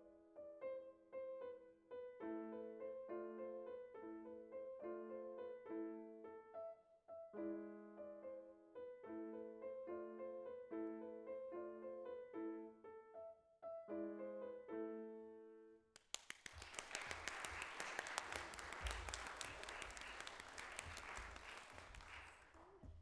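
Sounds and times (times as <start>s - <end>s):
audience applauding: 16.0s - 23.0s.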